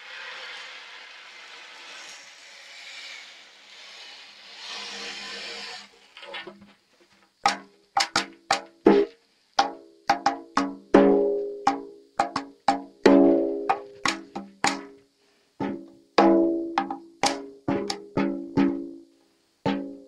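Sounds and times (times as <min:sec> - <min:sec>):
drum hits ringing: 0:07.4 - 0:15.0, 0:15.6 - 0:19.0, 0:19.7 - 0:20.0.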